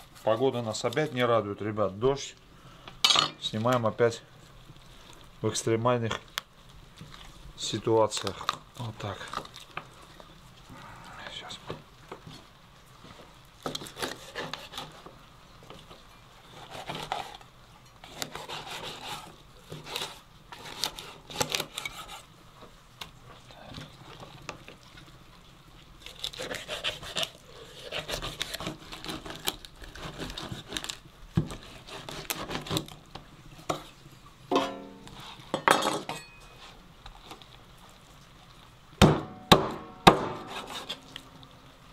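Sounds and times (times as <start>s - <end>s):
utensils and dishes clinking: 34.5s - 36.6s.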